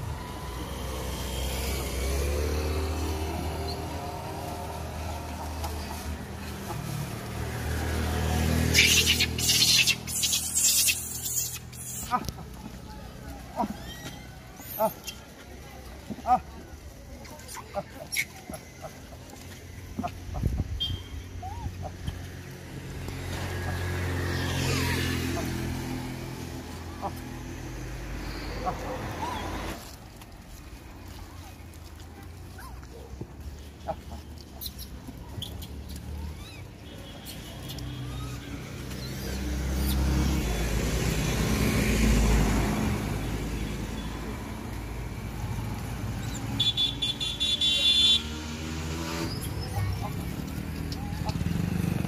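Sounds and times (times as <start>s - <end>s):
vehicle passing on road: 0.0s - 52.0s
short high squeaks: 8.7s - 12.2s, 13.6s - 15.3s.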